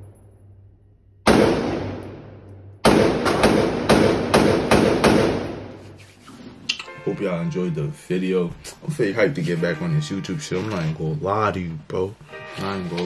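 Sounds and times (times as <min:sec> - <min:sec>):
pistol shots echoing indoors: 0:00.0 - 0:05.8.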